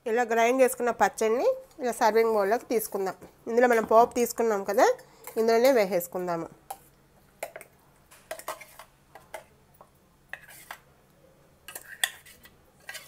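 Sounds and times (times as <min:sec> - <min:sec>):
steel spoon scraping and clinking: 0:08.3 - 0:08.9, 0:11.7 - 0:13.0.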